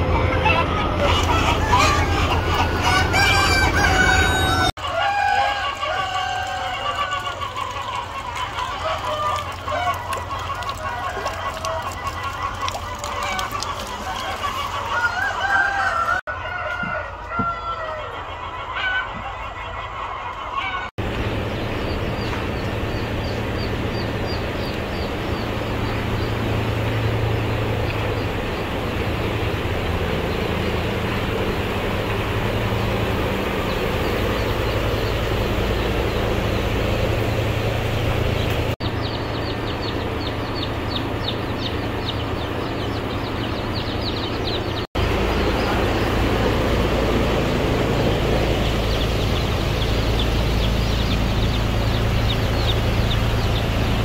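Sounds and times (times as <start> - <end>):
chicks peeping: 0.1 - 29.0, 30.1 - 37.0, 37.9 - 54.0
machinery hum: 21.0 - 54.0.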